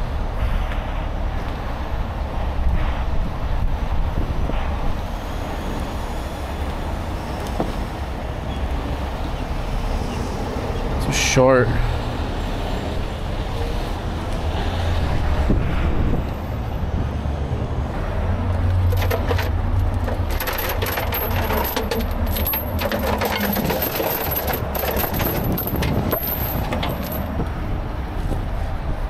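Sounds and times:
low engine rumble: 13.0s - 29.0s
steel chains clinking: 18.8s - 27.4s.

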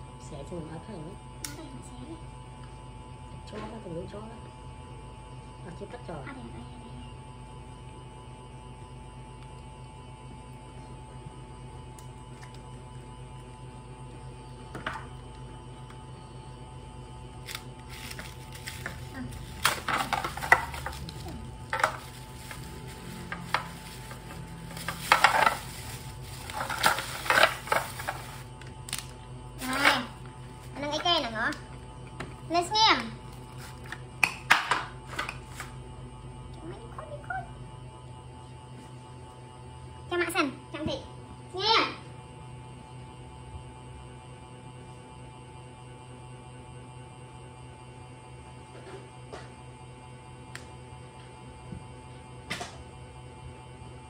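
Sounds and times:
low electrical hum: 0.0s - 54.0s
plastic bag crinkling: 17.4s - 28.5s.

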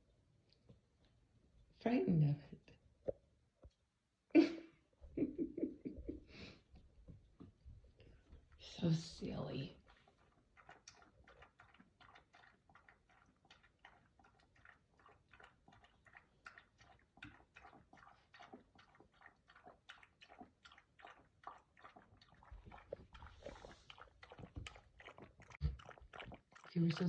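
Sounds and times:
dog lapping water from metal bowl: 8.1s - 27.0s.

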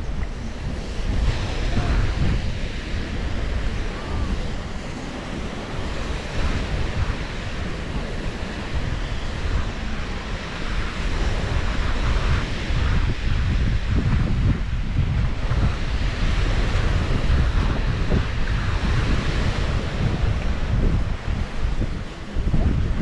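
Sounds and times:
waves washing on sandy beach: 0.0s - 23.0s
wind buffeting microphone: 0.0s - 23.0s.

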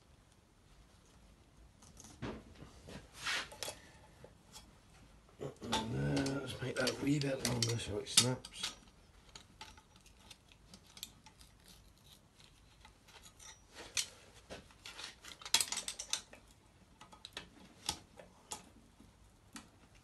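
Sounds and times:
metal tool clicking and clinking: 5.7s - 11.4s, 13.1s - 14.1s, 15.3s - 16.4s.

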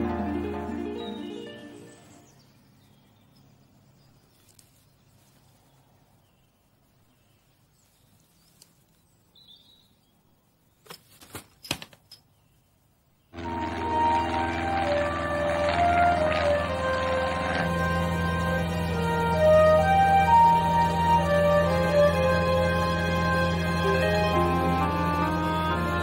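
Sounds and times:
music: 0.0s - 2.3s, 13.4s - 26.0s
soft bird chirps: 1.0s - 11.1s.

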